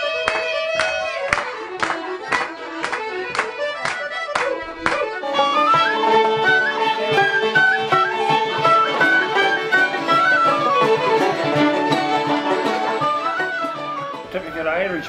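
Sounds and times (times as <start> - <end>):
fiddles playing: 0.0 - 15.0
tin whistle melody: 5.2 - 15.0.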